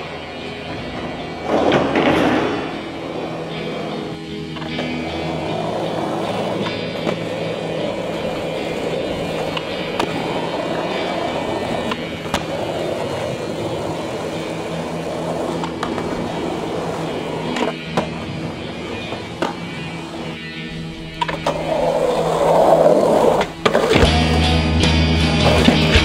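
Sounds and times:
music with sustained tones: 0.0s - 26.0s
skateboard wheels rolling on asphalt: 0.0s - 26.0s.

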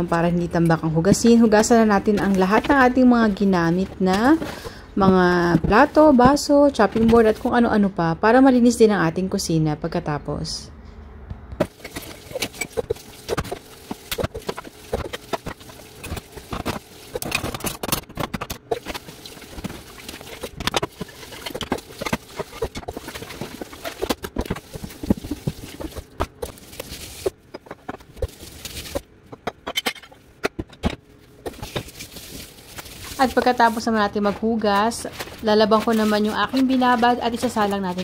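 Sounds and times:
tap water running: 11.7s - 17.2s, 18.7s - 27.3s.

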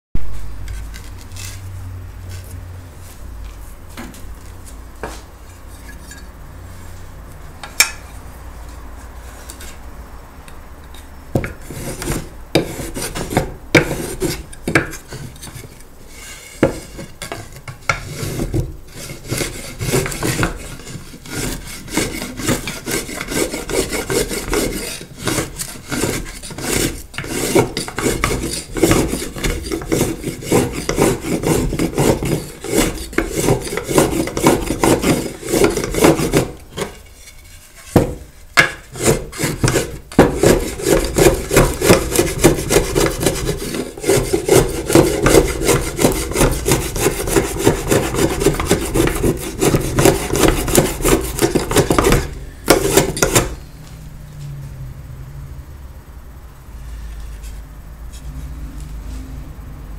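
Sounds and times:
hand tool scraping wood: 0.6s - 2.6s, 7.6s - 9.9s, 11.0s - 53.6s.

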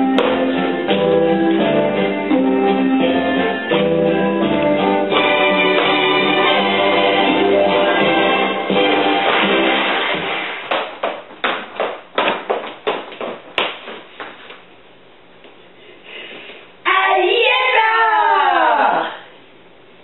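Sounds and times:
song music: 0.0s - 10.7s
hand claps: 0.2s - 0.5s, 5.7s - 6.2s, 9.2s - 9.9s, 10.7s - 14.4s.

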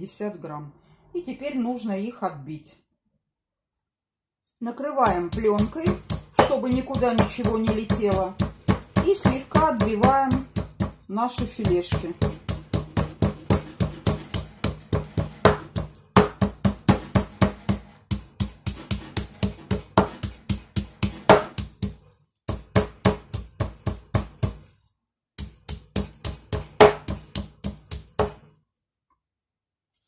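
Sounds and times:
meat mallet beating on board: 5.0s - 24.7s, 25.4s - 28.4s.

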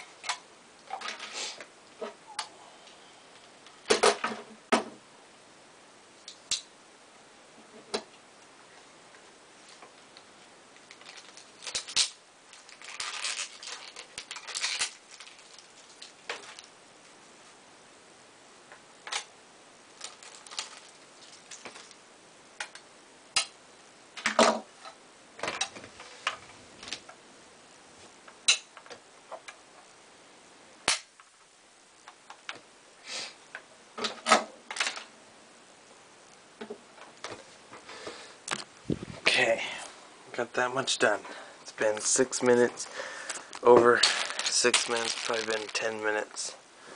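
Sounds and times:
rustling: 9.6s - 17.6s, 19.9s - 22.0s, 41.2s - 46.6s.

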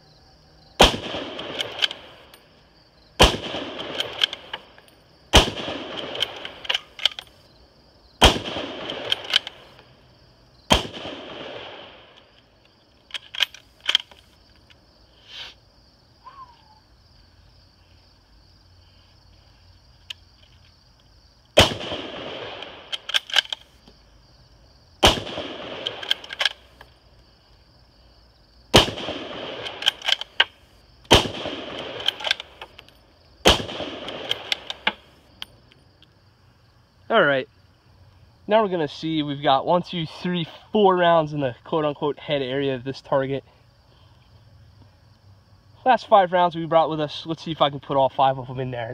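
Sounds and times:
rifle shots with echo: 0.8s - 2.3s, 3.2s - 4.7s, 5.3s - 7.2s, 8.2s - 9.7s, 10.7s - 12.2s, 21.6s - 23.5s, 25.0s - 26.6s, 28.7s - 30.4s, 31.1s - 32.6s, 33.4s - 35.1s
rifle bolt clicks: 1.4s - 2.4s, 3.8s - 4.9s, 5.9s - 7.4s, 8.8s - 9.6s, 13.1s - 14.8s, 22.6s - 23.7s, 25.8s - 26.9s, 29.6s - 31.2s, 31.8s - 33.0s, 34.0s - 36.1s.

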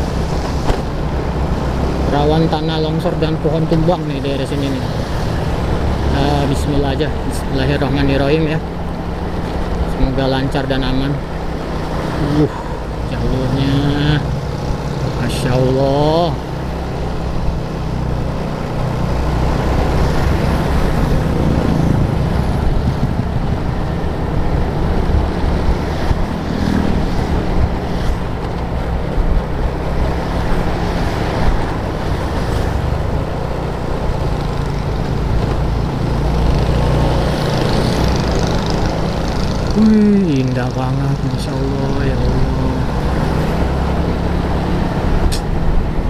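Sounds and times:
wind rushing over microphone: 0.0s - 46.0s
motorcycle engine running: 7.5s - 46.0s.

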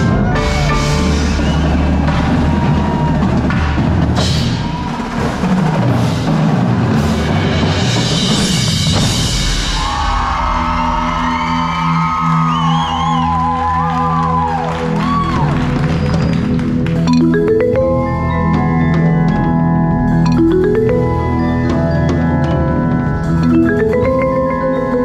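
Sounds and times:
dense drumming: 0.0s - 11.4s.

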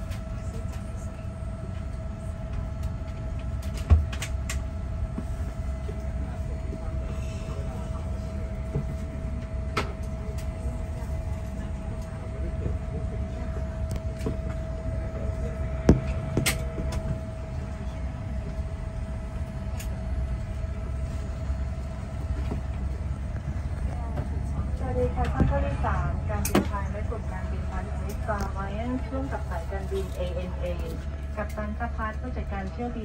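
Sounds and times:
low rumble of cabin noise: 0.0s - 33.0s
steady hum tone: 0.0s - 33.0s.

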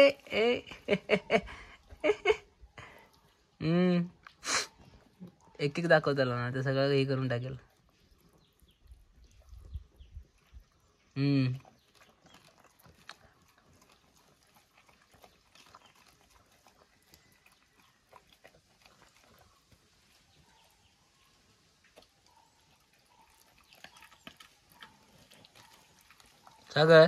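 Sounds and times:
dog chewing bones: 11.6s - 20.6s, 21.8s - 27.0s.

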